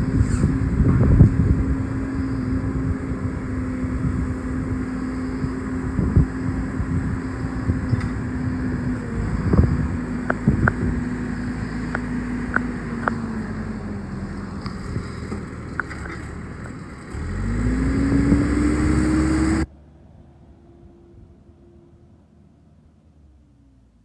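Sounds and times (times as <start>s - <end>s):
diesel engine running and revving: 0.0s - 24.0s
sharp clicks: 11.8s - 13.2s.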